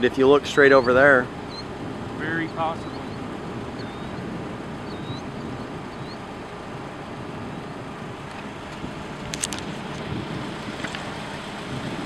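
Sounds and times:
faint bird chirps: 0:00.7 - 0:01.7, 0:02.3 - 0:06.6.

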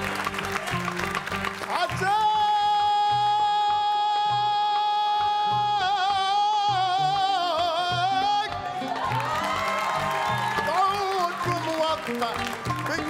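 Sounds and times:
man singing a long high note: 0:01.7 - 0:08.9.

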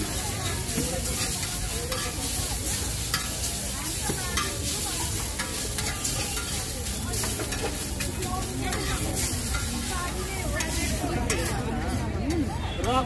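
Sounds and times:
metal spatula scraping a pan: 0:00.0 - 0:13.0
noodles sizzling in a wok: 0:00.0 - 0:13.0.

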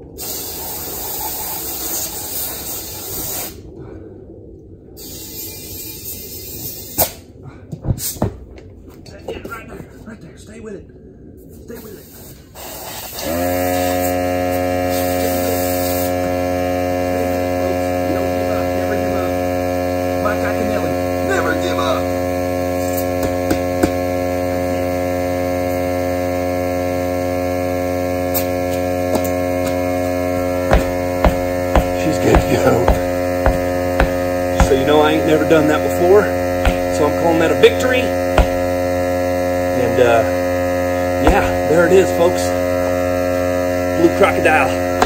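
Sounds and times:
air compressor humming: 0:00.0 - 0:03.7, 0:12.6 - 0:45.0
sharp knocks on tire: 0:23.2 - 0:24.0, 0:30.7 - 0:35.2, 0:36.6 - 0:37.2, 0:38.3 - 0:38.9, 0:41.2 - 0:41.7.

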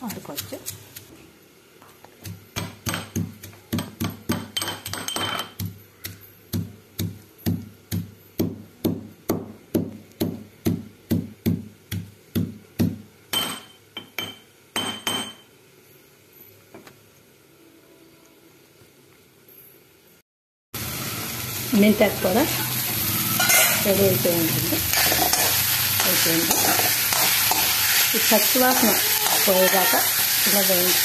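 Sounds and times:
metal pestle pounding in mortar: 0:02.5 - 0:13.6
pestle grinding scrapes: 0:24.6 - 0:30.4.

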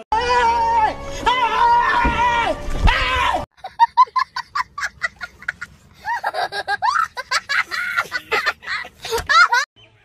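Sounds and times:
young child laughing: 0:03.6 - 0:09.7.

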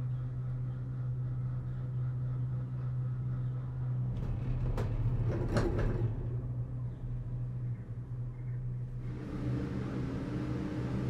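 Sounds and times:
lift machinery humming: 0:09.0 - 0:11.0.

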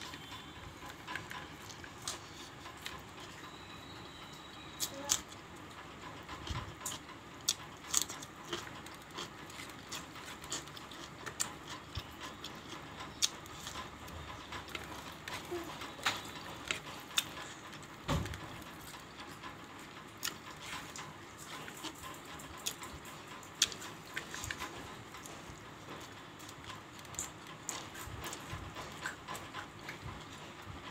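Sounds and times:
fingers mixing rice: 0:00.0 - 0:30.9.

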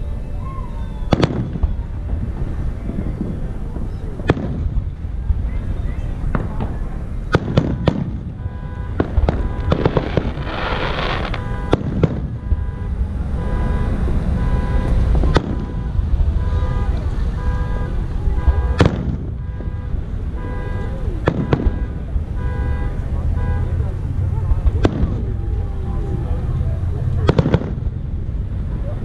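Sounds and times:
low rumble: 0:00.0 - 0:29.0
firework crackling: 0:00.7 - 0:20.3, 0:24.5 - 0:28.6
firework shells bursting: 0:09.0 - 0:12.5.

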